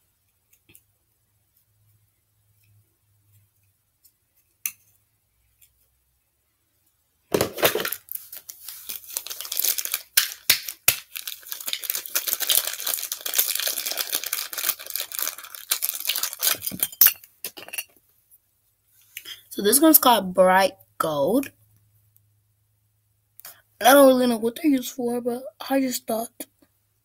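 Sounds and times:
plastic crinkling and tearing: 7.6s - 16.8s.

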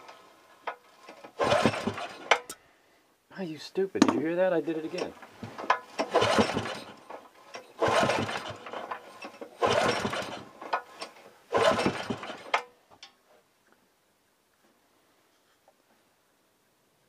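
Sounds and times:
engine pull-start cranking: 0.0s - 2.6s, 4.8s - 12.8s.

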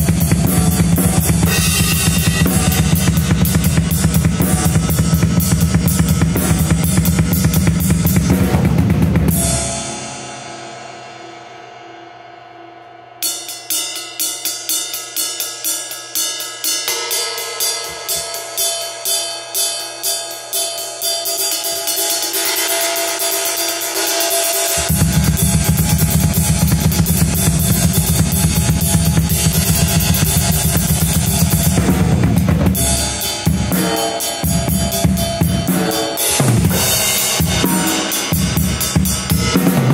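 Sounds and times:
drum kit played hard: 0.0s - 11.8s, 13.2s - 39.9s
ride cymbal strokes ringing: 9.3s - 39.9s.

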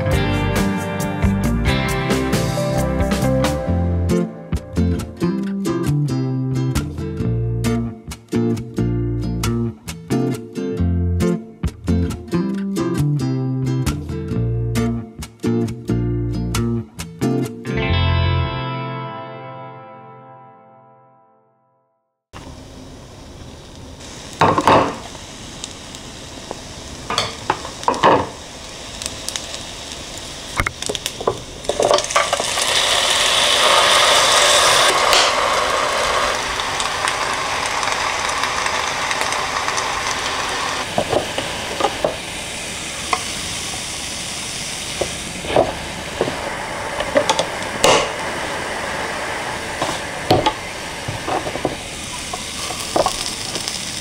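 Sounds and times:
dough sizzling in waffle maker: 22.4s - 54.0s.

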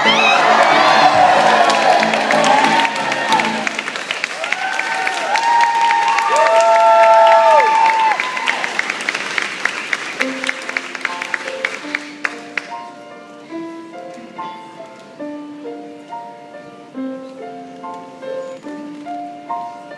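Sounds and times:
piano playing: 0.0s - 4.4s, 9.4s - 19.9s
applause: 0.1s - 12.7s.

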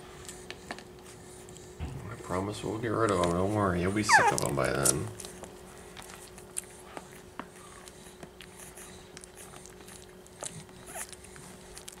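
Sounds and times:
puppies suckling clicks and smacks: 0.0s - 12.0s.

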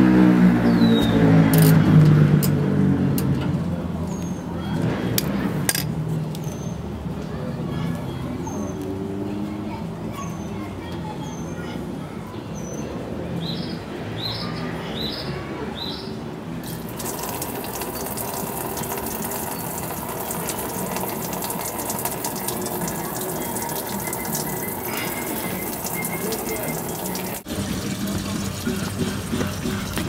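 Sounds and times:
fuel splashing into drain pan: 16.6s - 30.0s.

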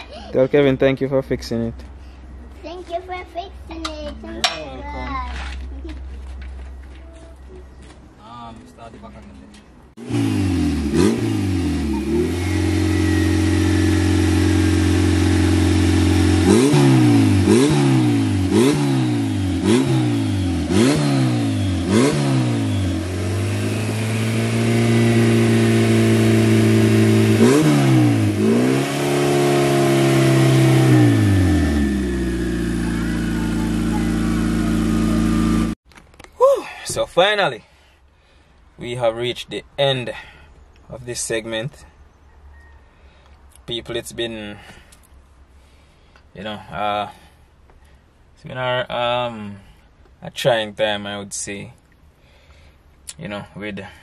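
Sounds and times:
car engine revving: 10.0s - 35.8s.

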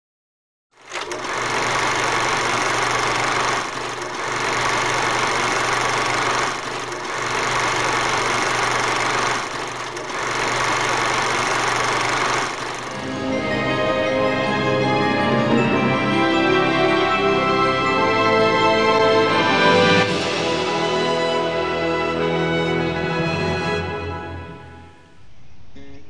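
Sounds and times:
loud mechanical whirring: 0.8s - 13.1s
music: 12.9s - 26.0s.

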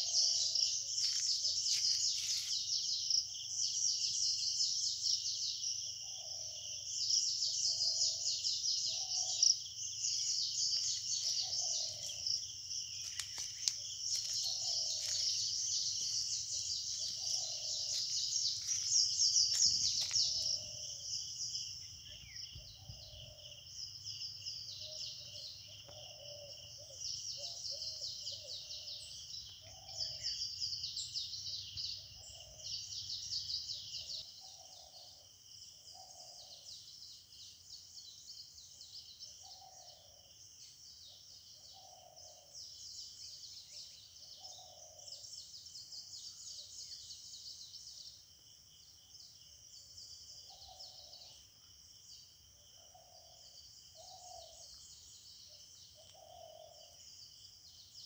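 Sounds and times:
high bird chirping: 6.1s - 23.6s.

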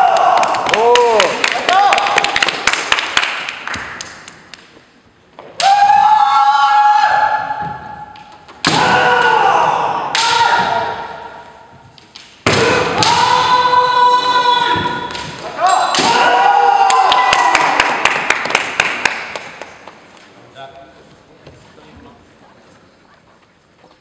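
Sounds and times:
loud held shouts: 5.6s - 8.0s, 8.7s - 11.5s, 12.6s - 17.8s
bamboo swords striking armour: 8.6s - 9.2s.

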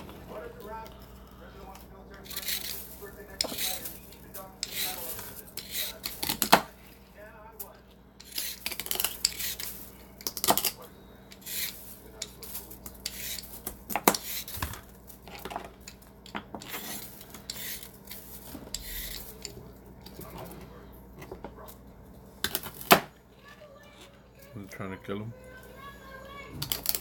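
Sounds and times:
utensils clinking against dishes: 0.6s - 6.8s, 7.6s - 20.6s, 26.5s - 27.0s.

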